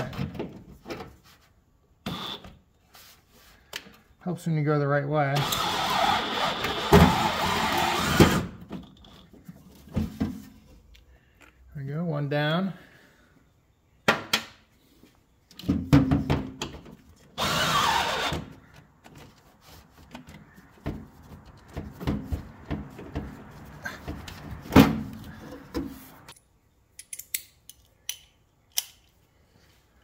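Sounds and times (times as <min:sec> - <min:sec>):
cordless drill running in spurts: 0:02.1 - 0:02.4, 0:05.4 - 0:08.4, 0:17.4 - 0:18.5.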